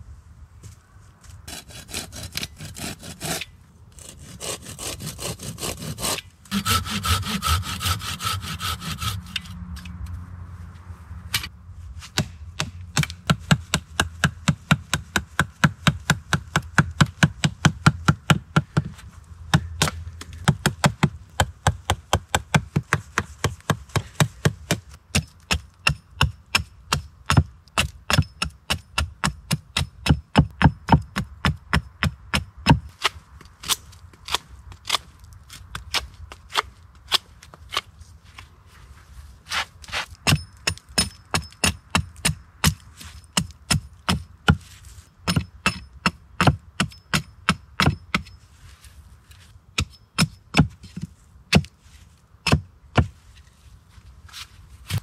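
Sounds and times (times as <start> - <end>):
hand saw cutting wood: 1.5 - 9.6.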